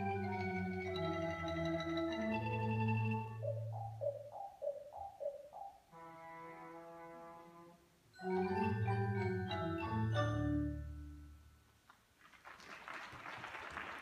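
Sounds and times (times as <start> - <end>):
mallet percussion ensemble playing: 8.2 - 11.4
audience applause: 12.2 - 14.0.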